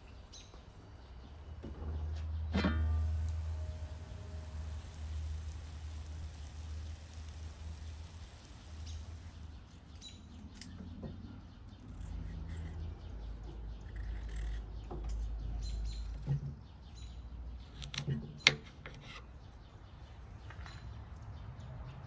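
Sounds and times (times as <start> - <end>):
small birds chirping: 0.0 - 2.6, 3.4 - 22.0
low steady rumble: 1.3 - 17.8.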